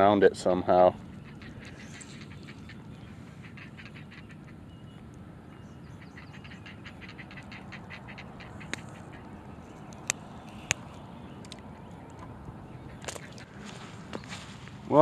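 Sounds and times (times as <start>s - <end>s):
low outdoor rumble: 0.0s - 15.0s
ducks quacking: 0.9s - 9.5s.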